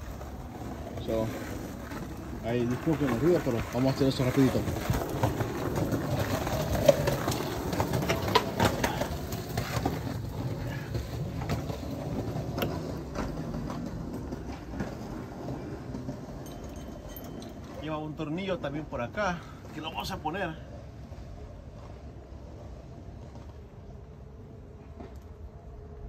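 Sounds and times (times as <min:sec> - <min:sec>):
low mechanical hum: 0:20.6 - 0:26.0.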